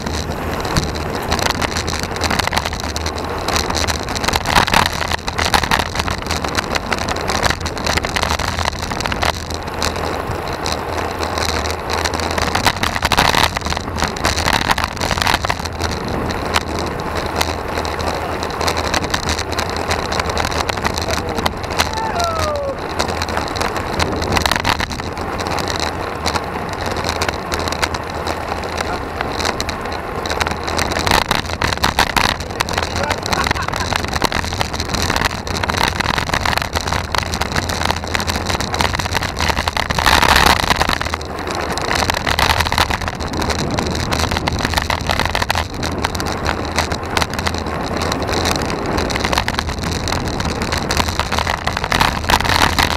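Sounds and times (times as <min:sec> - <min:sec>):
knocks from road surface: 0:00.0 - 0:06.4
tyres rumbling on asphalt: 0:00.0 - 0:52.9
wind noise on microphone: 0:00.0 - 0:52.9.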